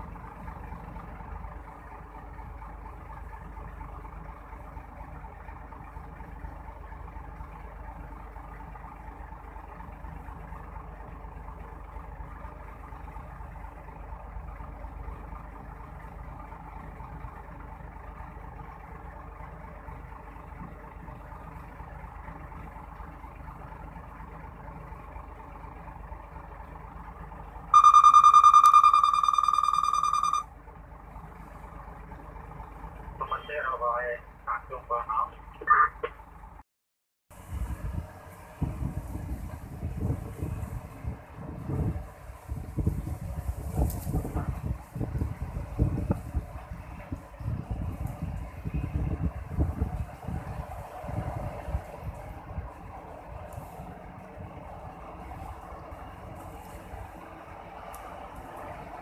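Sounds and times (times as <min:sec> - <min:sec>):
heavy diesel engines running: 0:00.0 - 0:36.6, 0:37.3 - 0:59.0
horn-like tone: 0:27.8 - 0:30.5.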